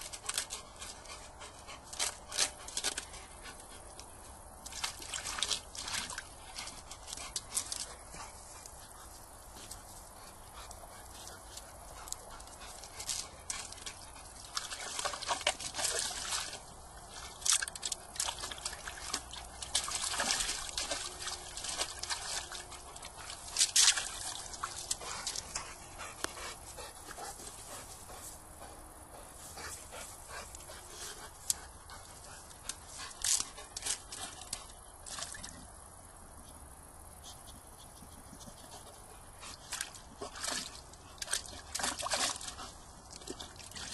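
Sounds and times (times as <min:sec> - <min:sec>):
dog splashing in water: 0:04.7 - 0:06.6, 0:13.0 - 0:25.5, 0:39.7 - 0:43.9.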